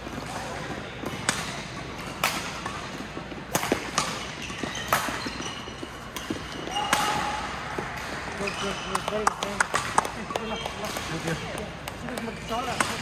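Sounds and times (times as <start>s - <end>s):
shoes squeaking on court floor: 0.0s - 13.0s
racket striking shuttlecock: 1.0s - 5.4s.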